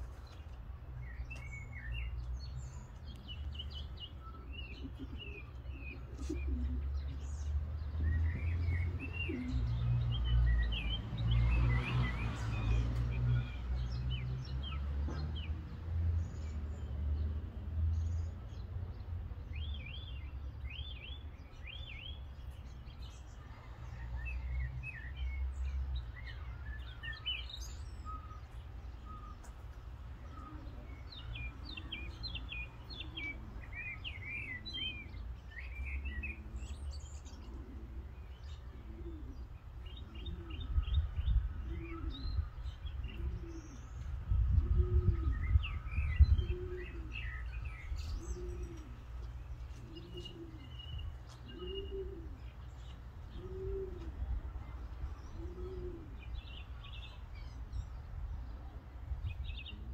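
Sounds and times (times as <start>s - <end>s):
songbirds chirping: 0.0s - 59.9s
wind buffeting microphone: 40.6s - 47.0s.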